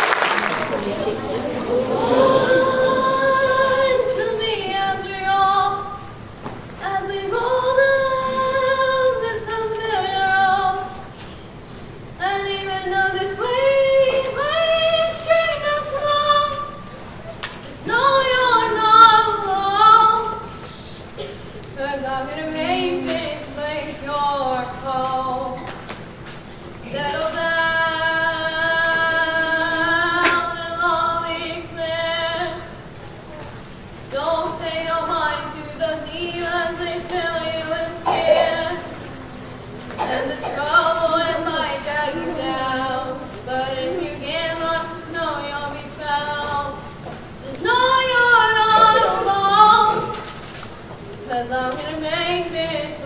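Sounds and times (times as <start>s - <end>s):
children's choir singing held notes: 0.0s - 6.2s, 26.8s - 50.3s.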